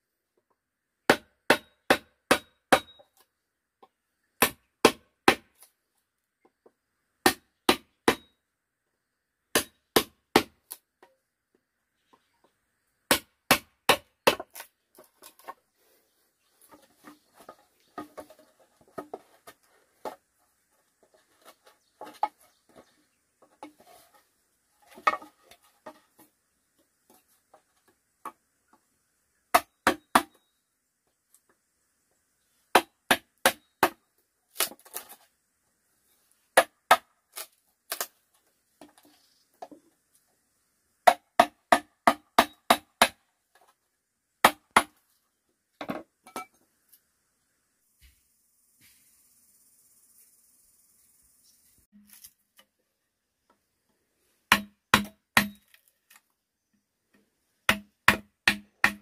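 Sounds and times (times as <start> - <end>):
quiet knocking and handling of bamboo: 0.2 - 7.0, 10.0 - 13.2, 13.9 - 28.9, 31.0 - 40.4, 43.4 - 47.1, 47.9 - 49.0, 51.9 - 59.0
tool striking bamboo: 1.1 - 3.2, 4.4 - 5.7, 7.2 - 8.4, 9.5 - 11.2, 13.1 - 15.5, 29.5 - 30.4, 32.7 - 34.0, 41.0 - 43.7, 44.4 - 45.0, 54.5 - 56.2, 57.7 - 59.0.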